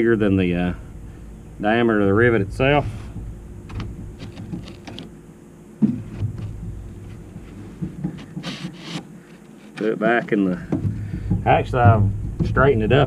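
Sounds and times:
low rumble: 0.0s - 8.0s, 10.7s - 13.0s.

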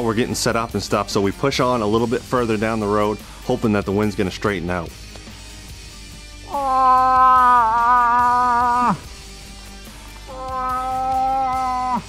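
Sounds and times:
person making moose call: 6.5s - 9.1s, 10.3s - 12.0s.

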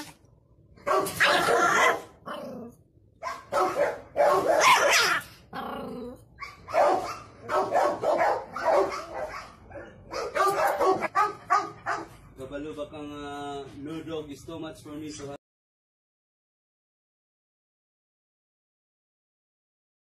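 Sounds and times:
small dog barking: 0.8s - 2.2s, 3.2s - 5.2s, 6.4s - 12.2s
dog growling: 1.3s - 2.8s, 5.1s - 6.3s.

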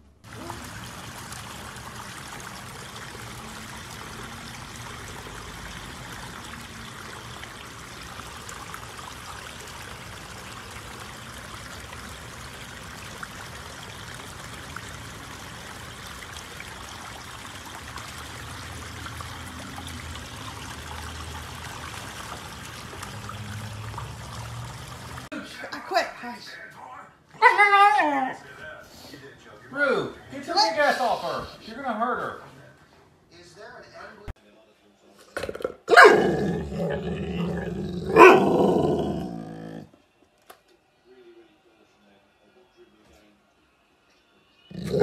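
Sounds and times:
small waterfall trickling over stones: 0.2s - 25.3s.

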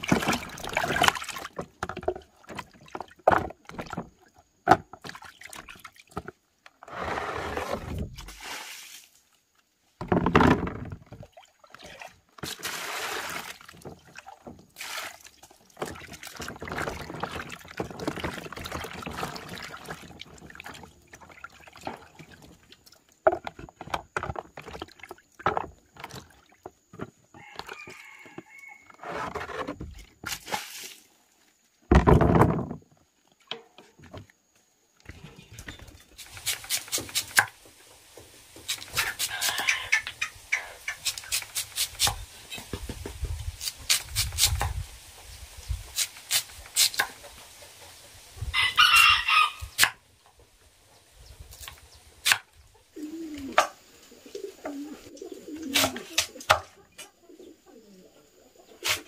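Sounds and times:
water splashing in plastic basin: 0.0s - 6.4s, 10.0s - 28.2s.

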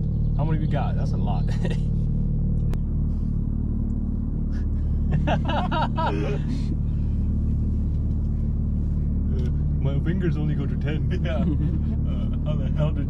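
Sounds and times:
car engine and road drone: 0.0s - 13.0s
person speaking: 5.3s - 6.8s, 10.1s - 12.9s.

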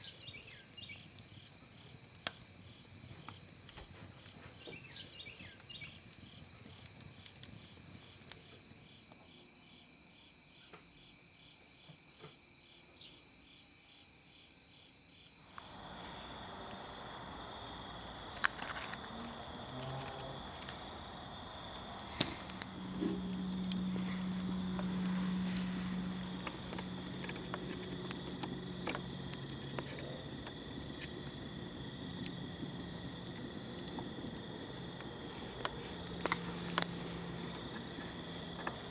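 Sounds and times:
insects chirping: 0.0s - 38.9s
low hum: 15.6s - 38.9s.

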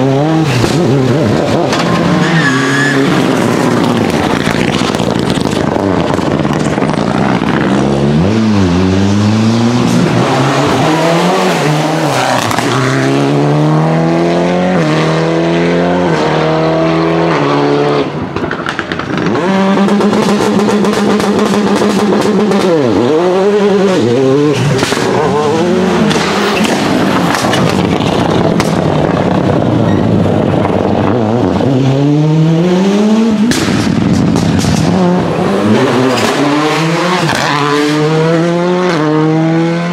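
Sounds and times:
rally car engines revving: 0.0s - 39.9s
exhaust pops and crackles: 3.2s - 7.8s, 18.3s - 22.8s, 24.6s - 25.2s, 26.0s - 29.8s, 33.5s - 36.4s.

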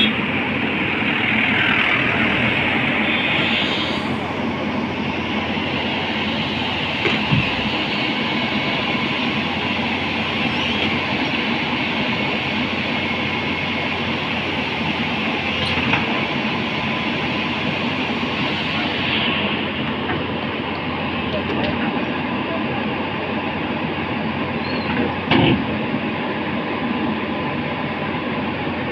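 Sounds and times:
steel tracks grinding and clanking: 0.0s - 27.1s
excavator engine running: 0.0s - 28.9s.

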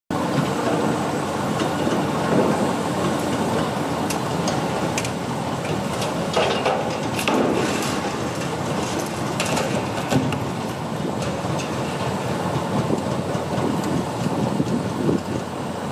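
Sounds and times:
diesel engine running: 0.1s - 15.9s
metal knocks and clanks: 4.4s - 14.8s.

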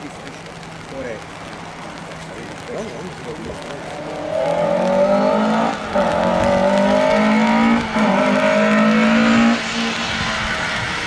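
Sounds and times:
rally car engine accelerating: 3.6s - 11.0s.

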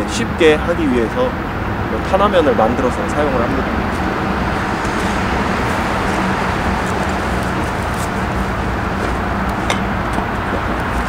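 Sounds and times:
rushing background noise: 0.0s - 11.0s
footsteps on dry grass: 3.8s - 11.0s.

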